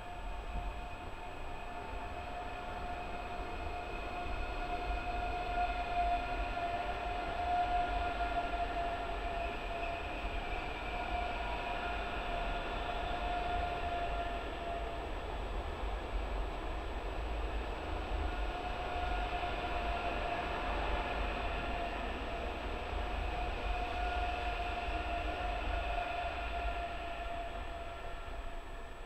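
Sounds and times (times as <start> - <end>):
electric train whine: 0.0 - 29.0.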